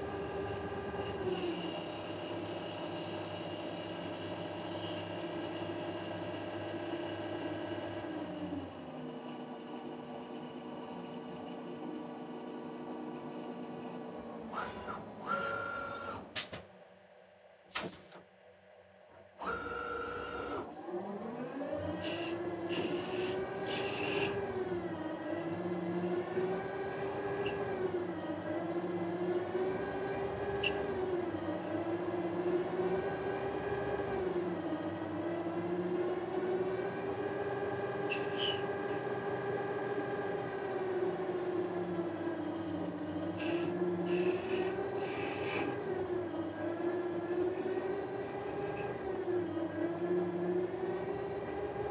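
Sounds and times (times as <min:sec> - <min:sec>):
lathe machine whine: 0:00.0 - 0:16.2, 0:19.4 - 0:51.9.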